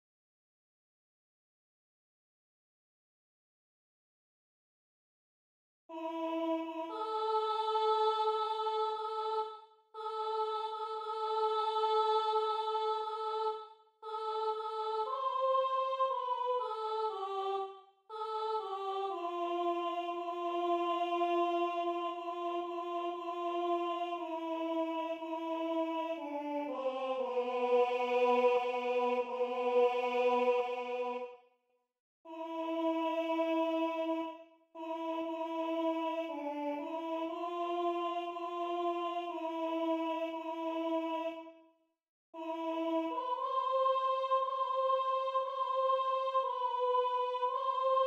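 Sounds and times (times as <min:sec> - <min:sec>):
choral hymn melody: 0:05.9 - 0:31.5, 0:32.3 - 0:41.6, 0:42.4 - 0:48.0.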